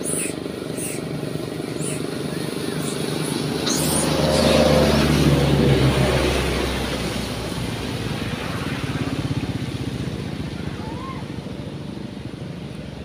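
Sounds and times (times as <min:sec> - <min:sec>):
vehicle engines on road: 0:00.0 - 0:13.0
vehicle passing close: 0:00.0 - 0:13.0.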